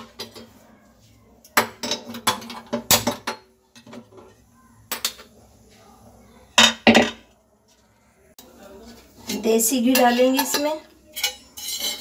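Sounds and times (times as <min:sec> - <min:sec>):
kitchenware clinking: 0:00.0 - 0:00.8, 0:01.4 - 0:05.5, 0:06.5 - 0:07.4, 0:08.4 - 0:12.0.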